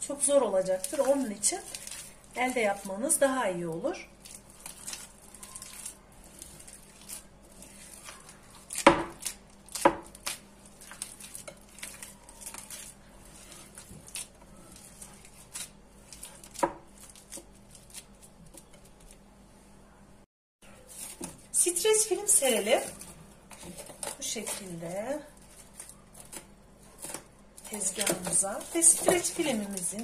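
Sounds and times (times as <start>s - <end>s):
hand kneading sticky mixture: 0.0s - 19.2s.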